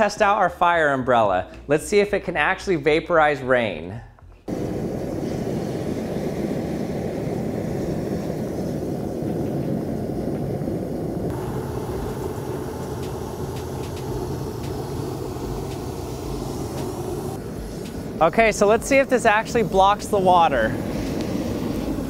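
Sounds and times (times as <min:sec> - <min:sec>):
propane burner flames rushing: 0:04.4 - 0:22.0.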